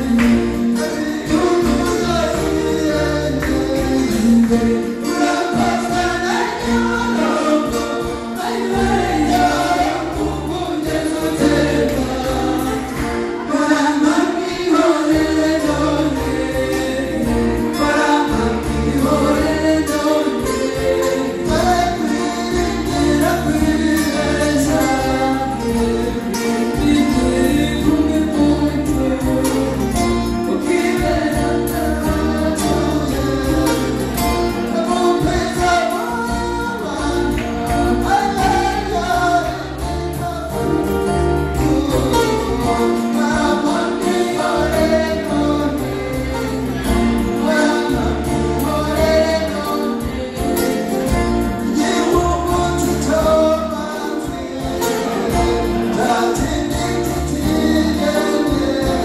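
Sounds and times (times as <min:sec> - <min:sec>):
amplified backing music with bass: 0:00.0 - 0:59.0
group singing into microphones: 0:00.0 - 0:59.0.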